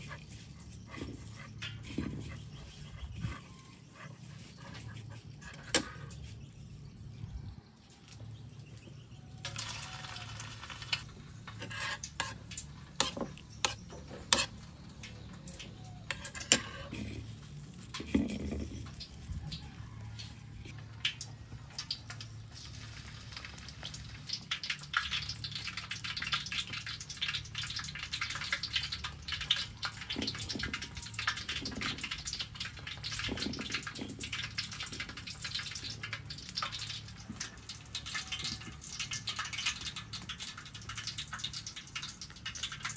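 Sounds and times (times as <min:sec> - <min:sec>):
food frying in hot oil: 0:00.0 - 0:07.5, 0:08.6 - 0:42.9.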